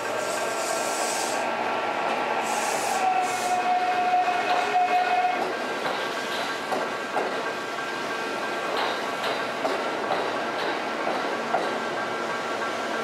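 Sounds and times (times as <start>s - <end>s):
train running gear whine: 0.0s - 13.0s
air hiss bursts: 0.1s - 1.6s, 2.2s - 3.8s.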